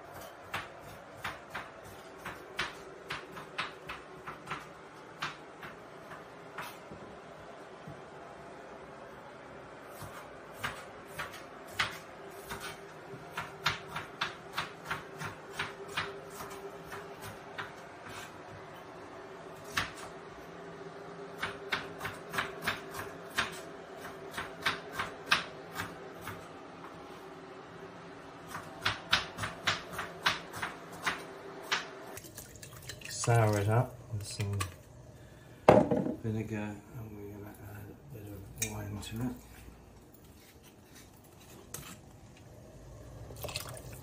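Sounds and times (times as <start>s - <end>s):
steady hum: 0.0s - 44.0s
sharp kitchen knocks and clicks: 0.4s - 6.7s, 13.3s - 16.5s, 21.4s - 26.4s, 28.5s - 31.9s.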